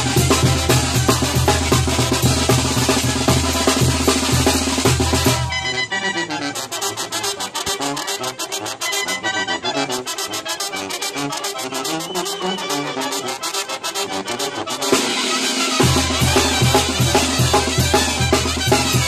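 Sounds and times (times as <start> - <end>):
festive brass band music: 0.0 - 19.0.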